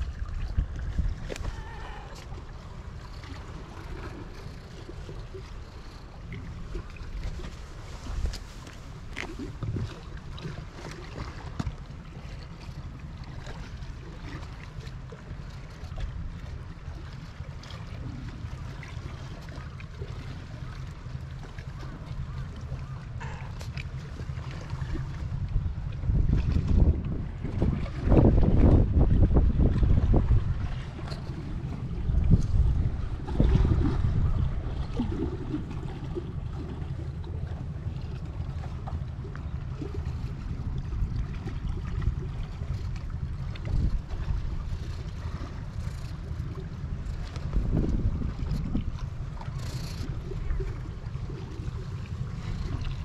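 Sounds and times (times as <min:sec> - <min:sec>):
wind buffeting microphone: 0:00.0 - 0:10.6, 0:22.8 - 0:53.0
sea washing against wall: 0:23.2 - 0:53.0.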